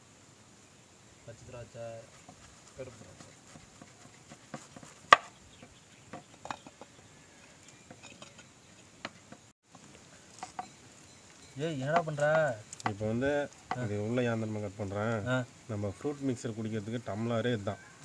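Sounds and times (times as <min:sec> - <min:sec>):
wooden masher pounding in clay pot: 0:02.1 - 0:07.0, 0:13.6 - 0:14.0.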